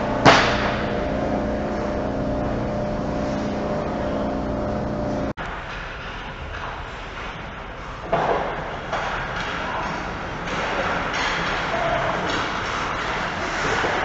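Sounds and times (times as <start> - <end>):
mechanical hum with held tones: 0.0 - 5.4.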